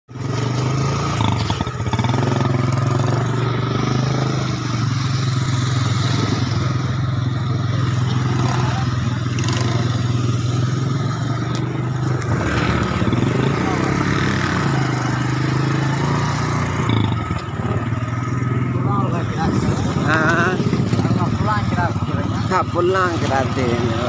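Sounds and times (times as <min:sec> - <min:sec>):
motorcycle engine running: 0:00.1 - 0:24.0.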